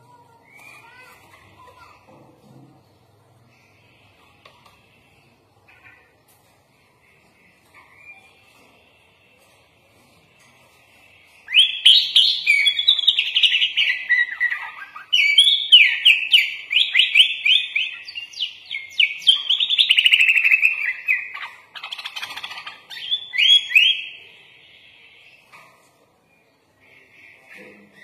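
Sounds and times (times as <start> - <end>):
bird singing whistled notes: 11.4 - 21.4, 23.0 - 25.4.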